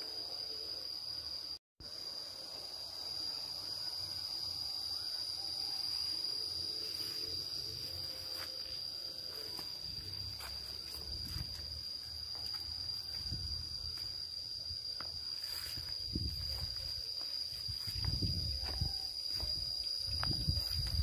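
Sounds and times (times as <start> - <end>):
insects trilling: 0.0 - 21.0
footsteps on dirt path: 8.2 - 21.0.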